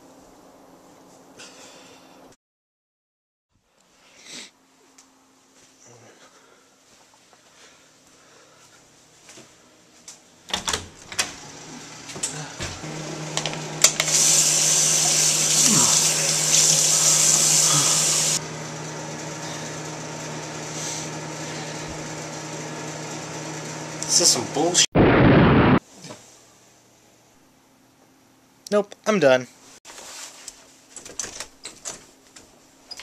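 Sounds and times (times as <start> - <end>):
tap water running into basin: 13.3 - 18.4.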